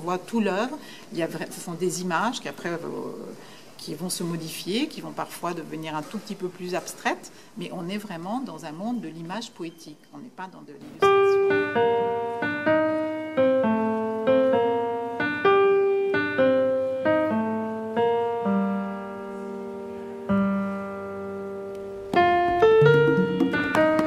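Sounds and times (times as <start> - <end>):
slow solo piano: 11.0 - 24.0.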